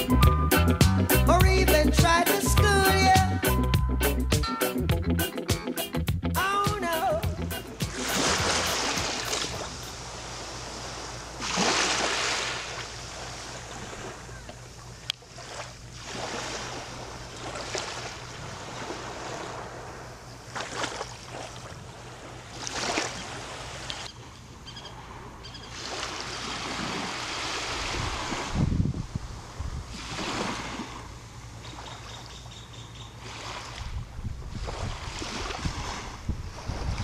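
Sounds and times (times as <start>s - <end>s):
small waves lapping on beach: 7.8s - 32.3s, 33.1s - 37.0s.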